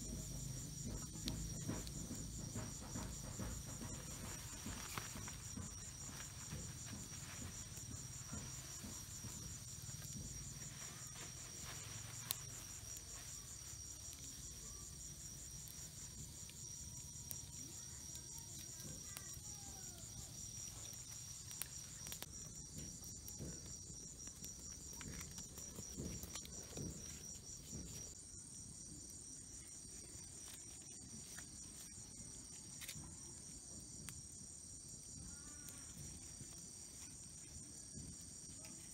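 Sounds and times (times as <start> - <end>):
crickets chirping: 0.0 - 38.9
faint clicks and rustles: 0.1 - 28.2.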